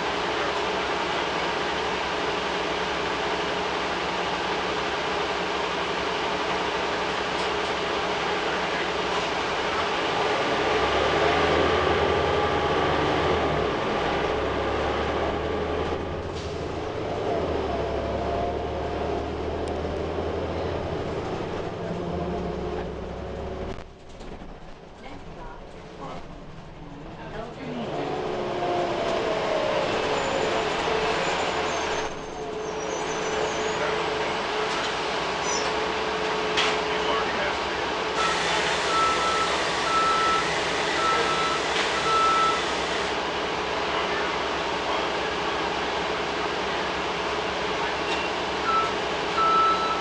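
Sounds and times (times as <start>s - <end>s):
bus engine hum: 0.0s - 50.0s
road and tyre noise: 0.0s - 50.0s.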